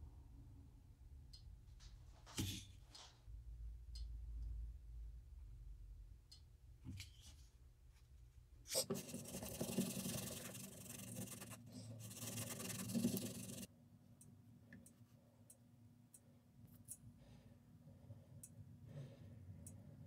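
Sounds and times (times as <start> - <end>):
stick scraping epoxy on tape: 8.7 - 13.7.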